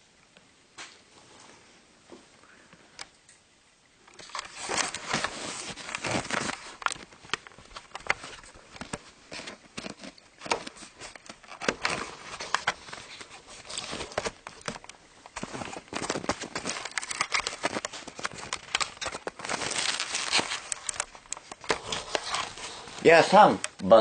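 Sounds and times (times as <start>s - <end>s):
camera handling clicks and rustling: 4.1s - 22.7s.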